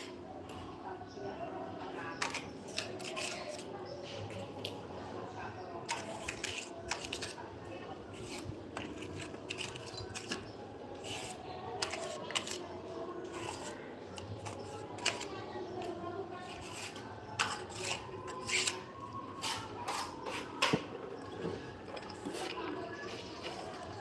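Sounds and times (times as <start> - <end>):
trowel scraping mortar: 2.2 - 3.7, 5.9 - 7.4, 8.0 - 12.6, 13.2 - 15.3, 16.4 - 20.9.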